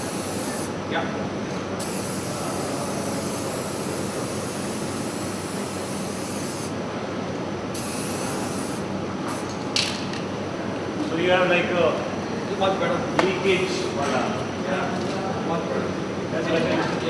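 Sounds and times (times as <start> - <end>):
spray-paint can hissing: 0.0 - 0.7, 1.8 - 6.7, 7.7 - 9.6.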